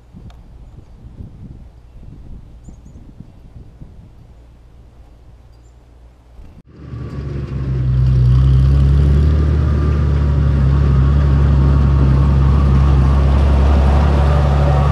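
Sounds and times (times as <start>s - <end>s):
tractor engine running: 6.4s - 14.9s.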